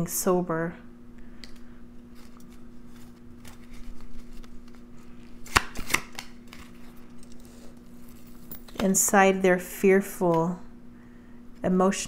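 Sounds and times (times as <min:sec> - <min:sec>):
faint steady hum: 0:00.0 - 0:12.0
cards rustling and flicking: 0:01.4 - 0:07.1
card snaps: 0:05.4 - 0:06.7.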